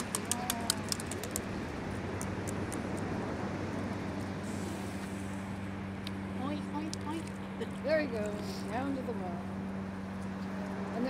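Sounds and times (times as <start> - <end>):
sharp clicks: 0.0 - 1.5
rushing outdoor noise: 0.0 - 11.0.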